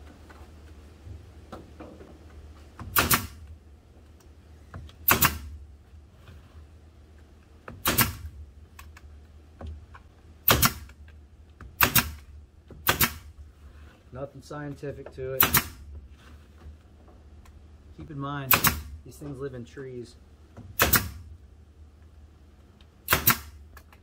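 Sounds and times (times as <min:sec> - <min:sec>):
nails hammered into plywood: 0:02.8 - 0:03.4, 0:04.8 - 0:05.6, 0:07.6 - 0:08.3, 0:10.4 - 0:11.0, 0:11.6 - 0:13.3, 0:15.4 - 0:15.9, 0:18.5 - 0:18.9, 0:20.6 - 0:21.3, 0:23.0 - 0:23.6.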